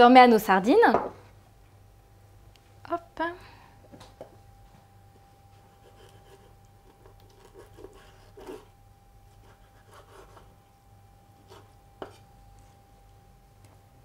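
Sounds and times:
knife scraping on wooden board: 0:05.8 - 0:08.7.

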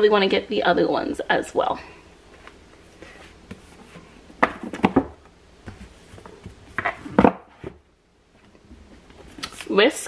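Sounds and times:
books rustling: 0:02.2 - 0:09.7
books knocking on wood: 0:04.4 - 0:07.8.

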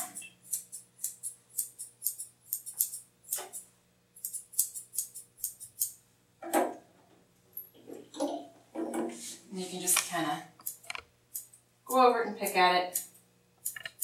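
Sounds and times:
scissors snipping hair: 0:00.0 - 0:06.0.

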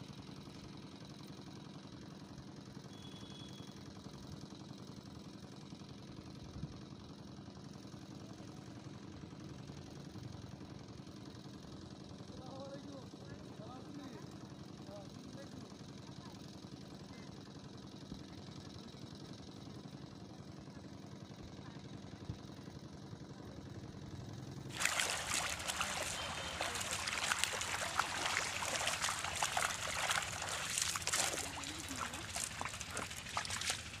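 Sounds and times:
fish splashing in net: 0:24.7 - 0:34.0
low steady hum: 0:24.7 - 0:34.0.

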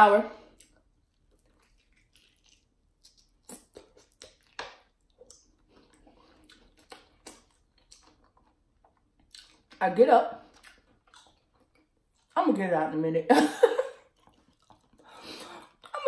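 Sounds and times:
close chewing mouth clicks: 0:00.6 - 0:08.6, 0:14.2 - 0:15.1.

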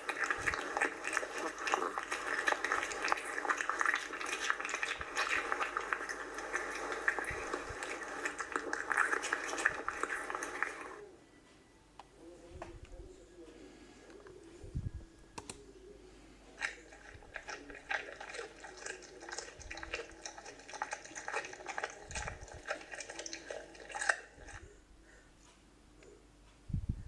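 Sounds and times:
cat crunching dry kibble: 0:00.0 - 0:11.0, 0:16.6 - 0:24.6.

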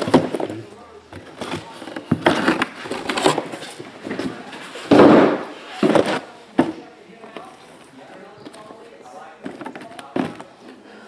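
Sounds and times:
boxes knocking on a table: 0:04.1 - 0:06.8.

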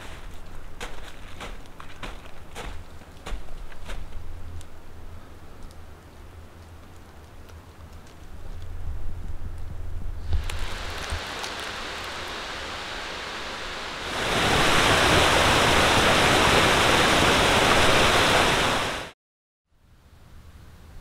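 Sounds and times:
flowing water rushing: 0:10.3 - 0:19.1.

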